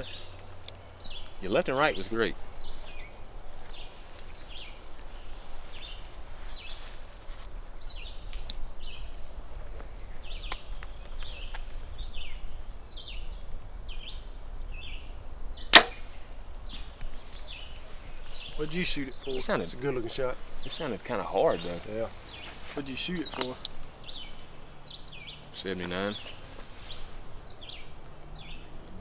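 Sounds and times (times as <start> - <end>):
bird chirping: 0.0 - 7.0, 7.8 - 29.0
bow shot crack: 15.7 - 16.3.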